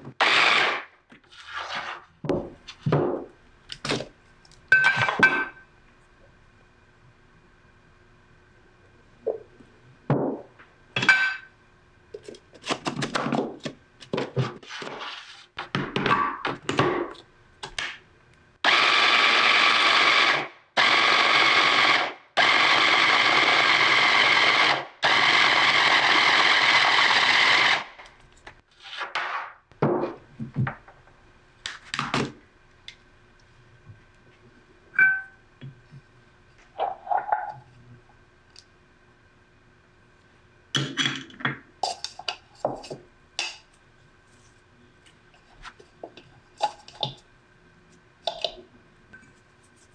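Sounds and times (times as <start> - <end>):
knocks and clinks of bowl and lid: 35.0 - 35.4.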